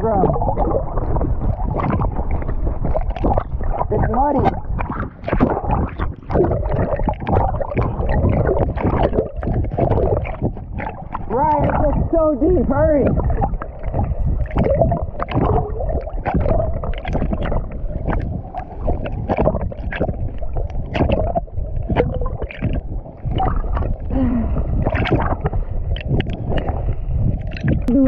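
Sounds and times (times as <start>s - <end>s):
dense low underwater rumble: 0.0s - 28.0s
muffled underwater gurgling: 0.0s - 28.0s
sharp splashing clicks: 1.7s - 11.9s, 13.0s - 23.9s.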